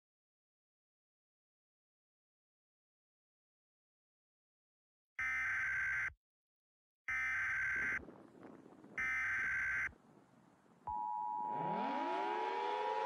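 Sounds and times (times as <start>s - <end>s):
two-tone attention signal: 10.9s - 13.0s.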